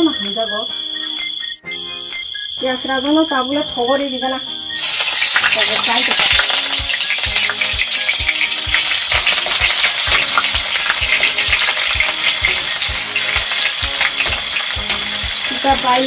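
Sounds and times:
food sizzling in hot oil: 4.7s - 16.0s.

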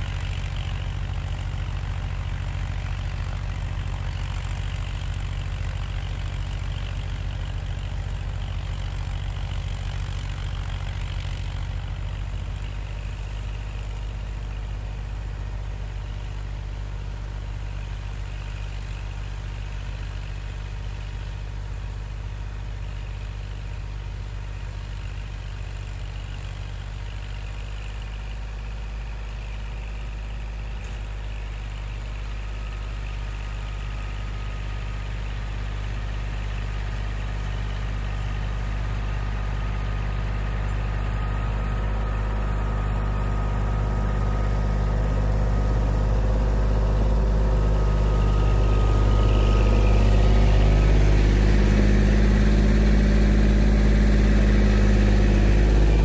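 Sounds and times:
tractor diesel engine running: 0.0s - 56.0s.

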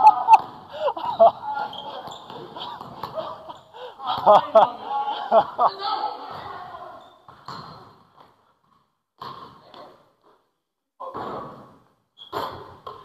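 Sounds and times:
person breathing heavily: 0.6s - 1.0s, 3.7s - 4.1s.

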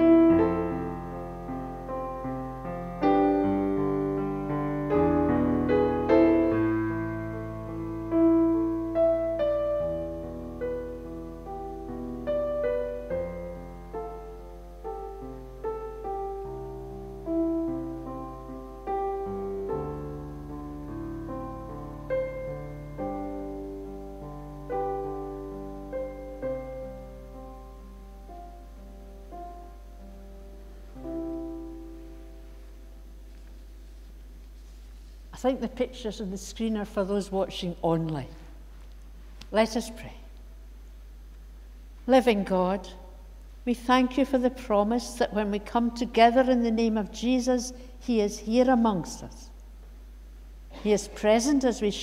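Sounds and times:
piano music: 0.0s - 34.1s.

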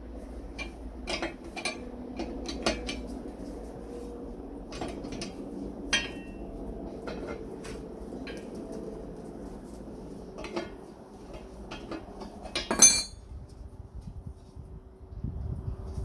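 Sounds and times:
metal parts clinking and clanking: 0.5s - 3.2s, 4.7s - 7.6s, 10.4s - 13.2s.

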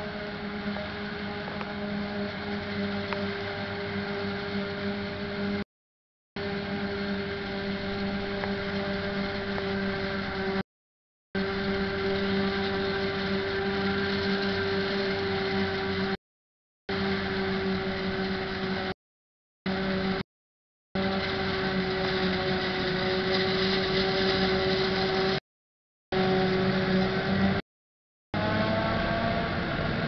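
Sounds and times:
harvester machinery drone: 0.0s - 5.6s, 6.4s - 10.6s, 11.4s - 16.2s, 16.9s - 19.0s, 19.7s - 20.2s, 21.0s - 25.4s, 26.1s - 27.6s, 28.4s - 30.0s.

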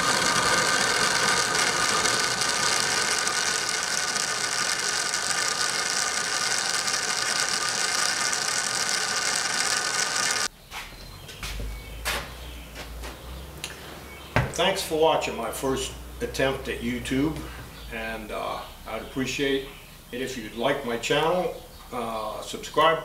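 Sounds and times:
lathe whirring: 0.0s - 10.5s.

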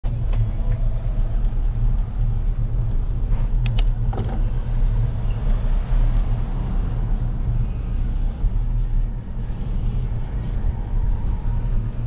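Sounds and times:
road noise: 0.0s - 12.0s
sharp clicks: 3.6s - 3.9s.

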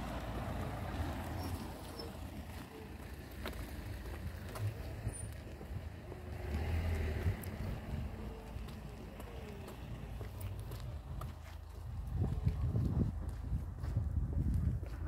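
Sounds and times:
wind buffeting microphone: 10.6s - 15.0s.

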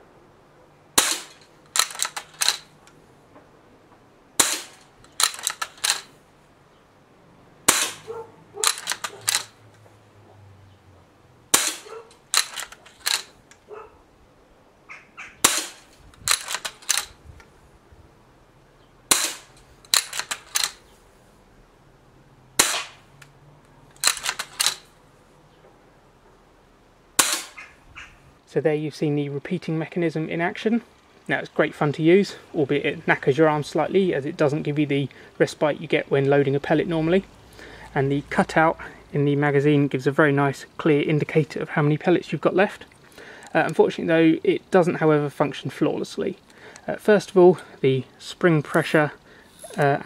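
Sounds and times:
air rifle shots: 1.0s - 2.8s, 4.4s - 6.2s, 7.6s - 9.6s, 11.5s - 13.4s, 15.4s - 17.2s, 19.1s - 20.8s, 22.6s - 23.1s, 24.0s - 24.9s, 27.2s - 27.7s
clicks of rifle barrel cocking: 1.0s - 3.0s, 4.4s - 6.2s, 7.7s - 9.6s, 11.5s - 13.7s, 15.4s - 17.5s, 19.1s - 20.9s, 23.9s - 24.9s, 27.2s - 27.7s.

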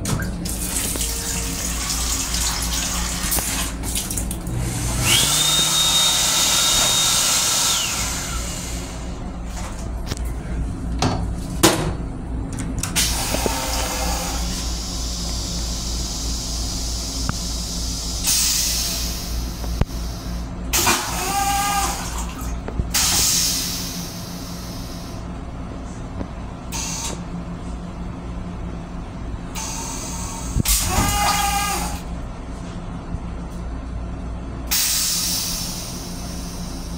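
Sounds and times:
toilet flush click: 0.0s - 4.0s, 12.9s - 14.6s
rinse water spraying: 0.4s - 8.7s
low train rumble: 7.6s - 20.8s, 22.5s - 30.6s.

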